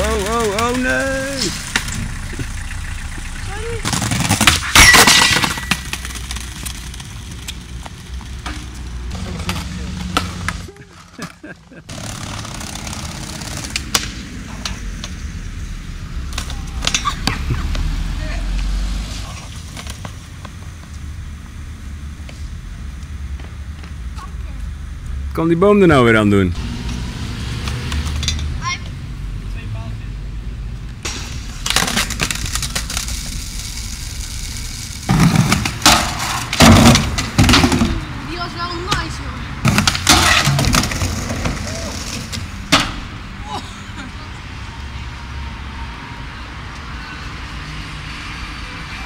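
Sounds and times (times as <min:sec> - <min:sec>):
skateboard wheels rolling on paving: 0:00.0 - 0:25.2, 0:26.2 - 0:29.0, 0:30.8 - 0:43.3
skateboard grinding a metal rail: 0:03.9 - 0:06.7, 0:31.1 - 0:38.0, 0:39.7 - 0:43.1
skateboard grinding a ledge: 0:11.9 - 0:14.0, 0:31.1 - 0:38.0
skateboard clacks: 0:35.1 - 0:38.0.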